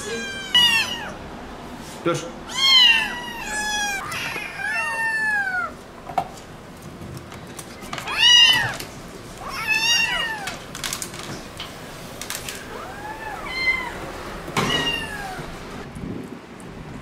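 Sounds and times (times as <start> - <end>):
kittens meowing: 0.0 - 1.2, 2.4 - 5.8, 8.0 - 10.6, 12.6 - 15.5.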